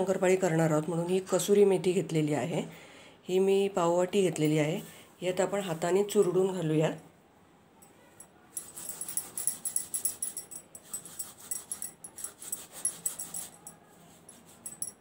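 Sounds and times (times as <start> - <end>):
bangles clinking: 7.8 - 15.0.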